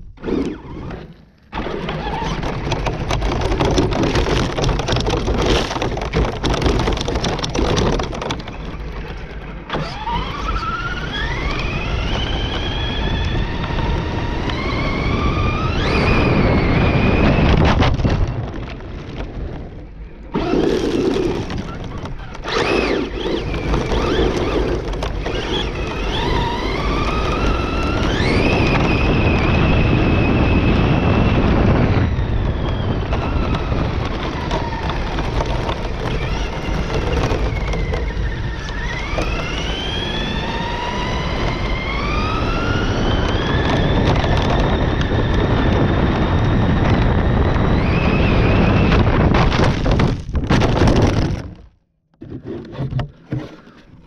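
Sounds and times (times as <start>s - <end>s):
rc truck motor whining: 0.0s - 4.6s, 8.4s - 17.6s, 20.3s - 49.1s
tyres on loose gravel: 0.0s - 54.0s.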